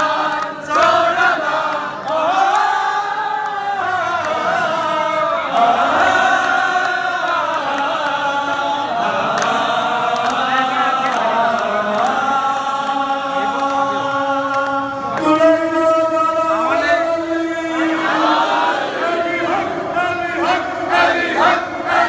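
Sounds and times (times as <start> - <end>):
men chanting in unison: 0.0 - 22.0.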